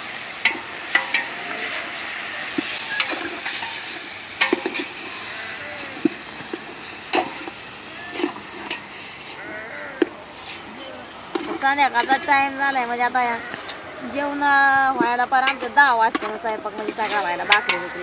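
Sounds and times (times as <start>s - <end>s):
meat sizzling in a pot: 0.0s - 18.0s
metal clinking against pot: 0.4s - 1.6s, 2.5s - 5.2s, 15.0s - 18.0s.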